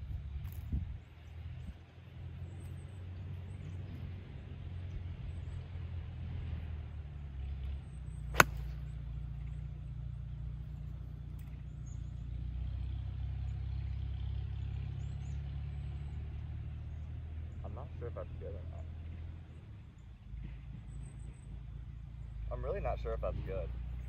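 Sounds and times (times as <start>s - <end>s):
golf club striking ball: 8.3s - 9.0s.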